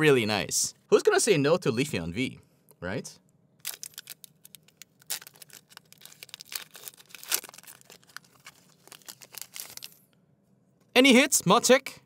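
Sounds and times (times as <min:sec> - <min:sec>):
foil wrapper tearing and crinkling: 0:03.6 - 0:10.0.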